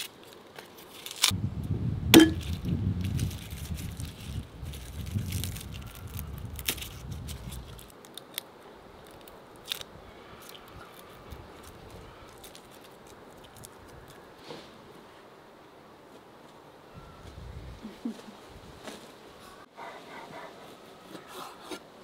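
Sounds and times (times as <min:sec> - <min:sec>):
garlic skins crackling: 0:00.0 - 0:01.4, 0:02.2 - 0:14.2.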